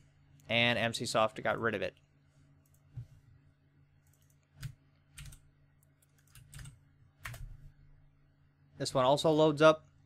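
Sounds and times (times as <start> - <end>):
low electrical hum: 0.0 - 10.0
keyboard and mouse clicks: 4.0 - 7.6.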